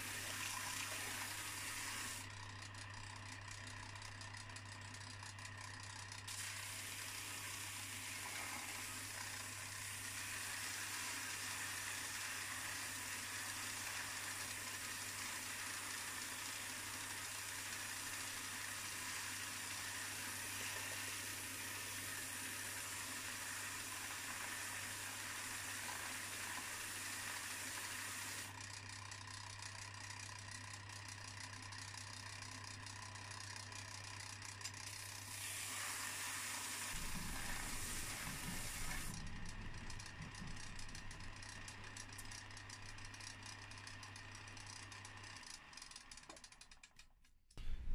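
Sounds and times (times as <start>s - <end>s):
metal grinding hiss on belt: 36.9s - 39.2s
belt sander motor hum: 36.9s - 46.7s.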